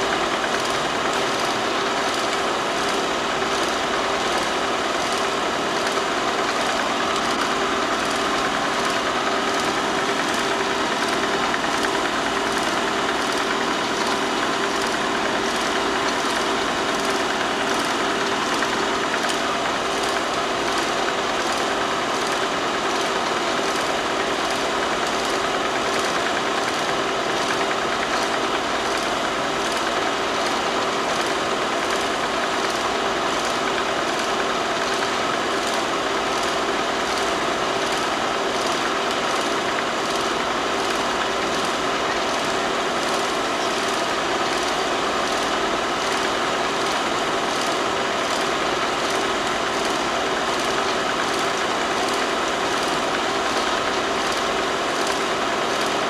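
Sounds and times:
film projector whirring: 0:00.0 - 0:56.0.

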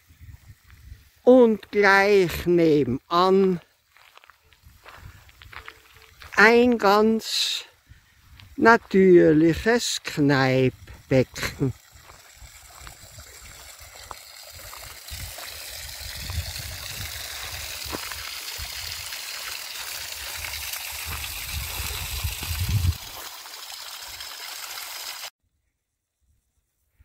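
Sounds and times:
water splashing into pool: 0:11.3 - 0:25.3.

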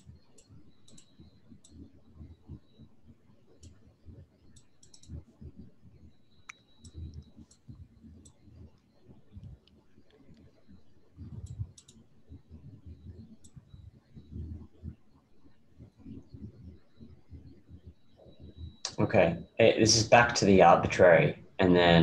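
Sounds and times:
computer mouse clicking: 0:00.0 - 0:01.8, 0:03.6 - 0:03.8, 0:04.5 - 0:05.2, 0:06.4 - 0:08.4, 0:11.2 - 0:12.0, 0:13.4 - 0:13.6.

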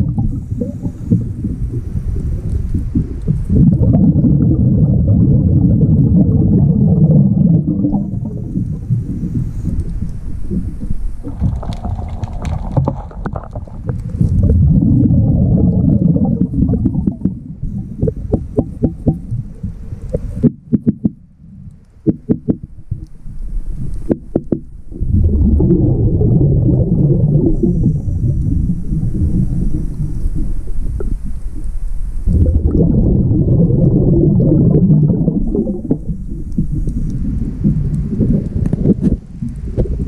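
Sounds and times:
rumbling exhaled bubbles: 0:00.0 - 0:40.0
sharp metal taps underwater: 0:20.1 - 0:21.2, 0:22.0 - 0:23.1.

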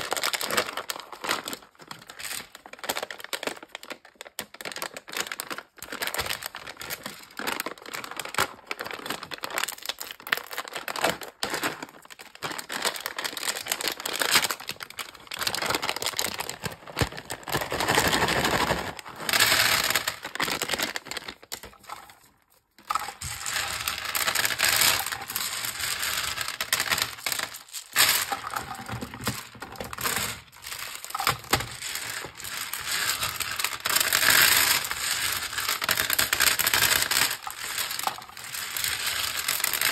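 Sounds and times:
plastic wrapper crinkling: 0:00.0 - 0:39.9.

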